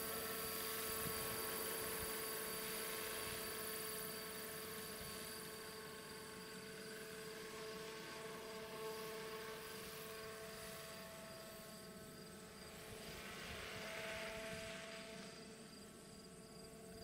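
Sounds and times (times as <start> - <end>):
helicopter motor and rotor whine: 0.0 - 17.0.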